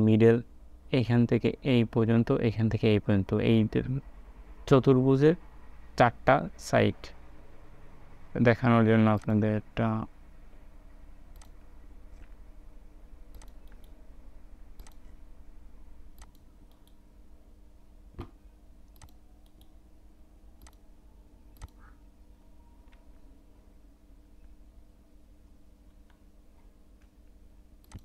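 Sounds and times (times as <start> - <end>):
faint background hum: 0.0 - 28.0
computer mouse clicking: 11.3 - 11.6, 13.3 - 14.0, 14.8 - 15.1, 16.2 - 17.0, 18.9 - 19.8, 20.6 - 20.8, 21.6 - 21.9, 27.8 - 28.0.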